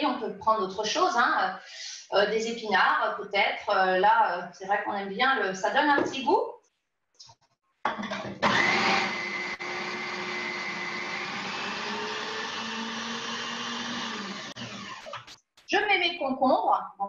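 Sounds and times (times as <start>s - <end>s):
juicer motor whining: 8.3s - 15.3s.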